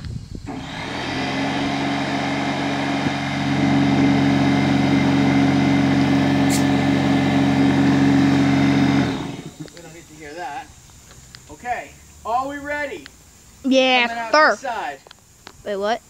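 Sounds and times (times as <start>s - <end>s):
air compressor running: 0.4s - 9.8s.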